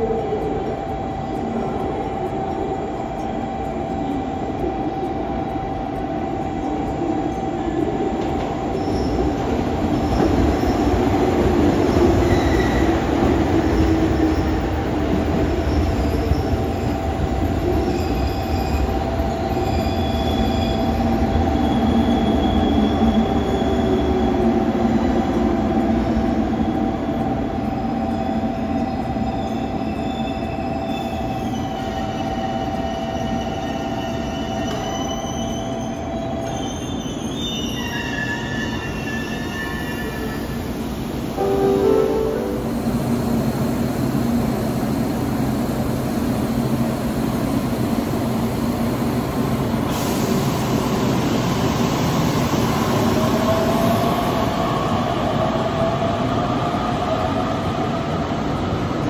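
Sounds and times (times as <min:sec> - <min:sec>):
train rumbling on rails: 0:00.0 - 0:59.0
faint higher tones: 0:41.4 - 0:43.5
constant high tone: 0:41.4 - 0:43.6.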